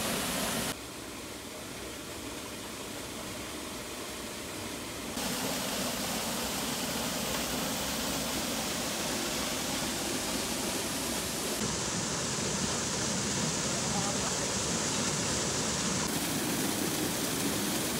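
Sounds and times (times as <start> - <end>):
waterfall pouring into a pool: 0.0 - 0.8, 5.2 - 17.9.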